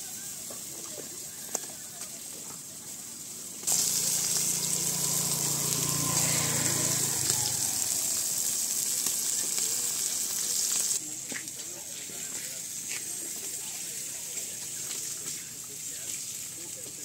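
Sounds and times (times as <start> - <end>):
oil sizzling under frying fish: 0.0 - 17.0
low hum: 3.7 - 8.2.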